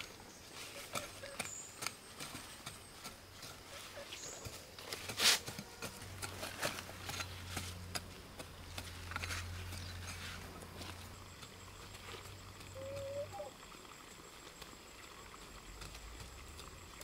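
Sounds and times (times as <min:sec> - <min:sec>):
hoe chopping and scraping soil: 0:00.0 - 0:12.7.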